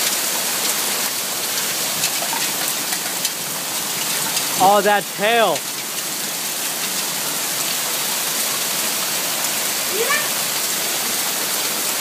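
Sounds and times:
hard rain falling: 0.0s - 12.0s.

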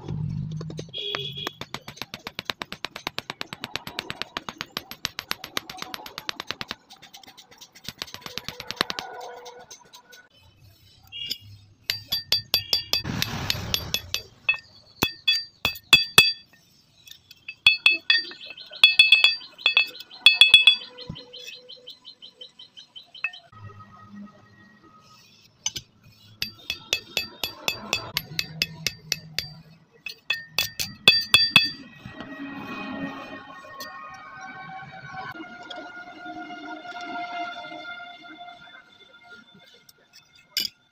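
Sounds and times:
metal tool striking saw blade: 11.2s - 16.6s, 17.5s - 20.9s, 26.4s - 31.9s.

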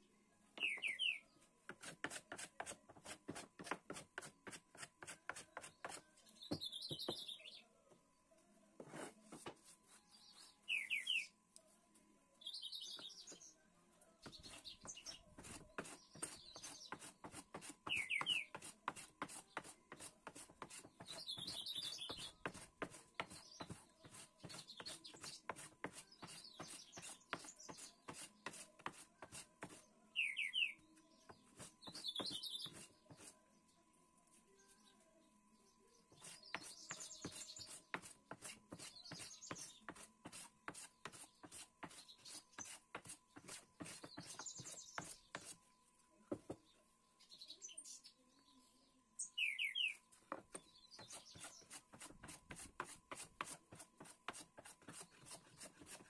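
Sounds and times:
birds chirping: 0.0s - 1.5s, 5.3s - 8.1s, 10.0s - 11.4s, 12.4s - 18.6s, 19.2s - 28.6s, 29.6s - 33.8s, 34.5s - 40.0s, 40.8s - 45.8s, 46.4s - 52.4s
hand plane shaving wood: 1.7s - 6.0s, 15.4s - 17.8s, 18.5s - 21.5s, 22.1s - 29.8s, 36.2s - 45.6s, 51.0s - 56.0s.

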